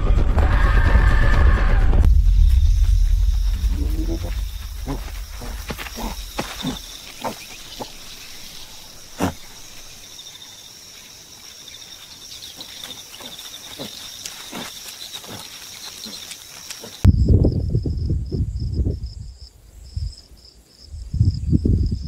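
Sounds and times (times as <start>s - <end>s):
low rumble: 0.0s - 7.2s
chirping insects: 2.1s - 22.0s
insects buzzing: 2.1s - 22.0s
low animal sounds: 3.6s - 9.8s.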